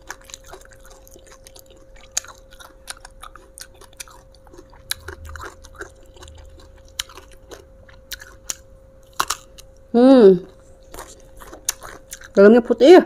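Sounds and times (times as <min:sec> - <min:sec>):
person chewing crunchy food: 0:00.0 - 0:09.9, 0:10.5 - 0:12.4.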